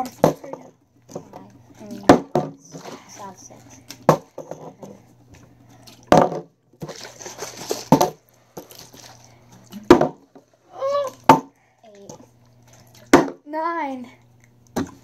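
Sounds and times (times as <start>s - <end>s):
plastic bottles knocking on table: 2.0s - 3.0s, 4.0s - 4.8s, 6.1s - 6.5s, 7.7s - 8.7s, 9.9s - 10.4s, 11.2s - 11.5s, 13.1s - 13.4s.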